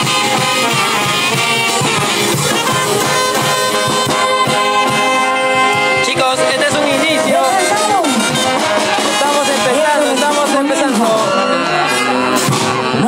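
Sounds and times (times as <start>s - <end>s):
steady drum beat: 0.0s - 13.0s
trumpets and trombones: 0.0s - 13.0s.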